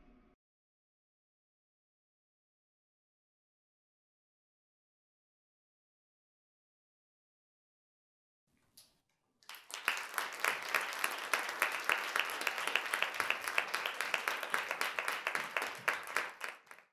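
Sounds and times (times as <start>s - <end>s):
audience applauding: 9.4s - 16.9s.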